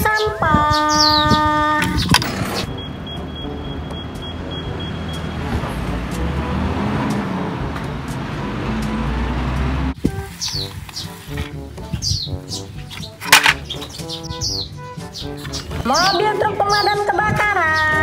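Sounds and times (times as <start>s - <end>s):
diesel truck engine rumbling: 1.4s - 11.9s.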